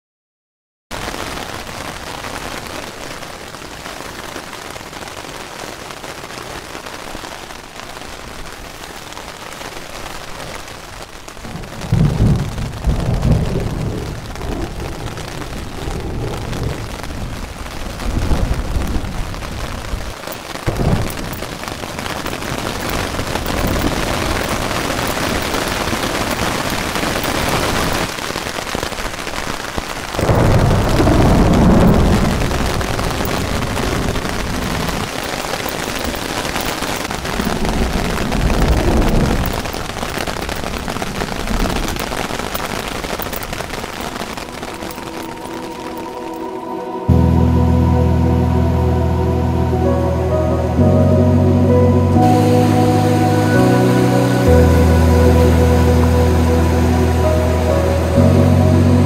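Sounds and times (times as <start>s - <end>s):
heavy rain on a tent: 0.9s - 59.0s
low rumbles: 43.3s - 59.0s.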